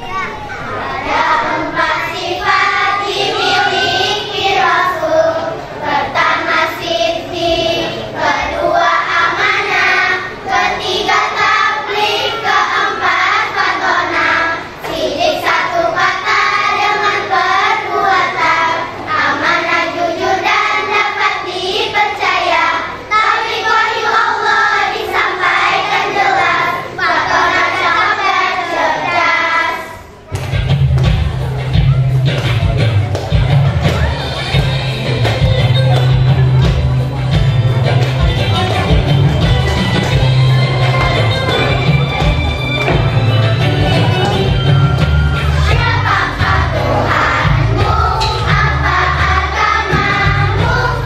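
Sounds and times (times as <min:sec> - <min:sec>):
girls singing in unison: 0:00.8 - 0:30.3, 0:45.4 - 0:51.0.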